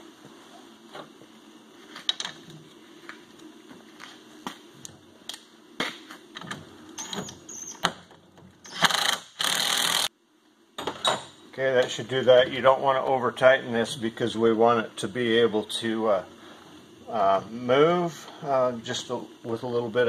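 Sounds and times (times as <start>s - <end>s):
cordless drill running: 8.7s - 10.1s.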